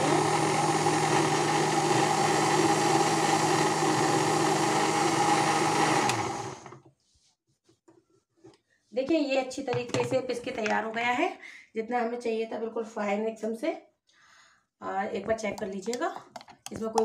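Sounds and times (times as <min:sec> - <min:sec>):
mixer grinder running: 0:00.0 - 0:06.8.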